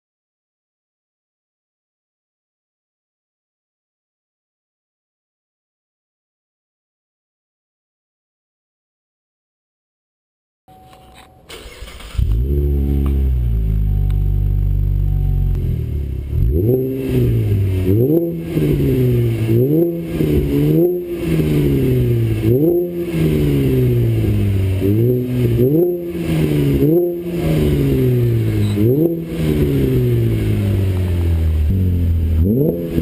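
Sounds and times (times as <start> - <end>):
car engine idling and revving: 11.5 - 33.0.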